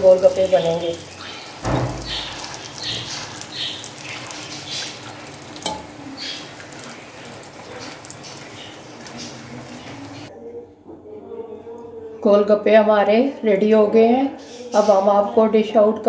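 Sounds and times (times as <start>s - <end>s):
food sizzling in hot oil: 0.0s - 10.3s
spoon splashing hot oil: 0.0s - 10.3s.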